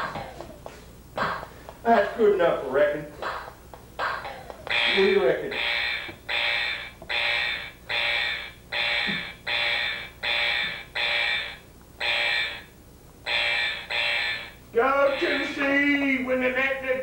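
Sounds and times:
pulsing electronic buzzer: 4.7s - 15.5s.

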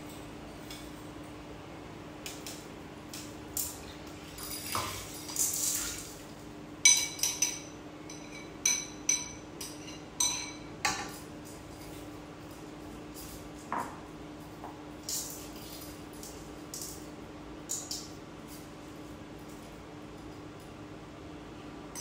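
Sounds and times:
faint steady hum: 0.0s - 22.0s
utensils clinking on cookware: 6.8s - 14.0s.

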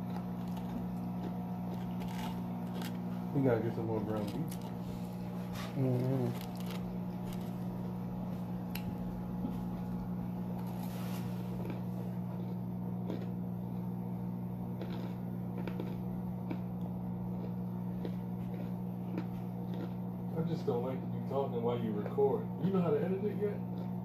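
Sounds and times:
chewing and mouth clicks: 0.0s - 3.1s, 11.5s - 13.9s, 14.7s - 20.1s
steady low hum: 0.0s - 24.0s.

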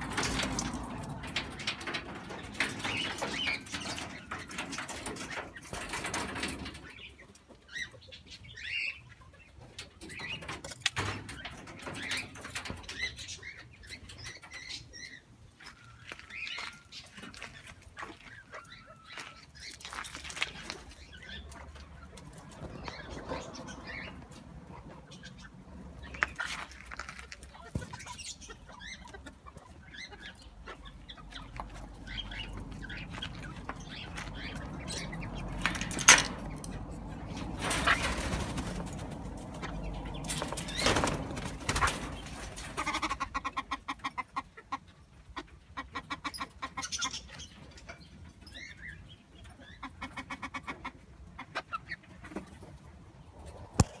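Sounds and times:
wings flapping: 37.2s - 43.1s
fowl clucking: 42.7s - 47.2s, 49.8s - 52.4s.

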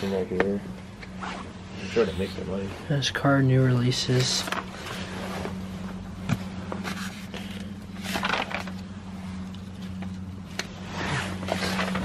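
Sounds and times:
steady low hum: 0.0s - 12.0s
paper rustling and scraping: 6.8s - 8.7s, 10.9s - 12.0s.

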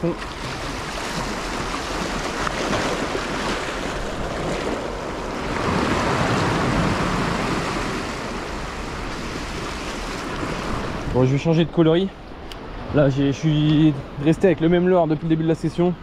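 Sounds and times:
waves washing over rocks: 0.0s - 11.4s.

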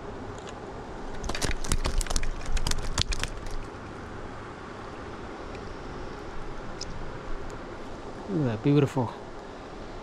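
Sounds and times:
crackling and clicking of fish hook: 0.4s - 3.7s.

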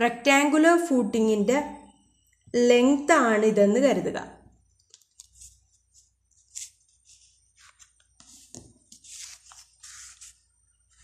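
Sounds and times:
paper rustling and scraping: 5.2s - 11.0s.

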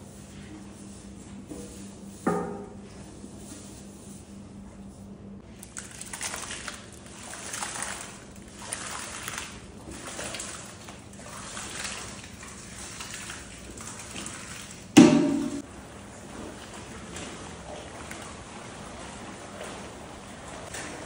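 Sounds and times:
liquid pouring and splattering: 5.5s - 15.7s
loud metallic clang: 15.0s - 15.6s.

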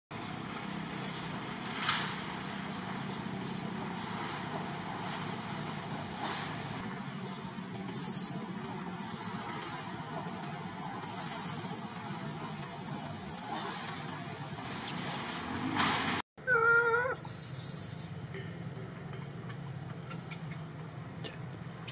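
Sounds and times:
infant monkey screaming: 16.4s - 18.1s.

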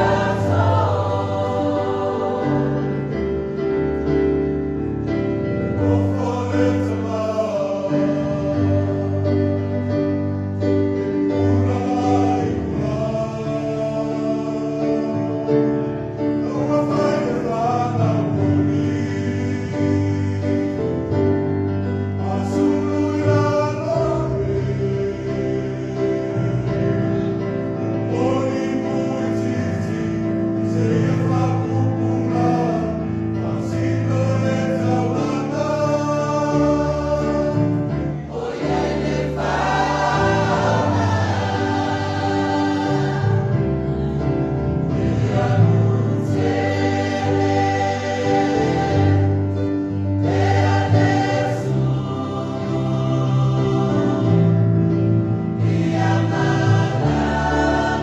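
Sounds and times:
church choir singing a hymn: 0.0s - 58.0s.

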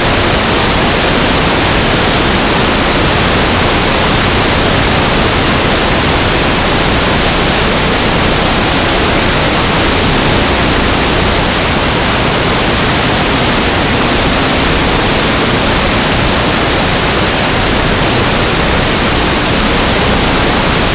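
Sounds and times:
loud static hiss: 0.0s - 20.9s.

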